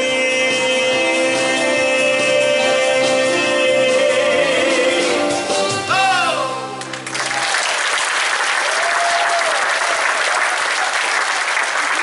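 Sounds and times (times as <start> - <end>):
audience applauding: 6.8 - 12.0.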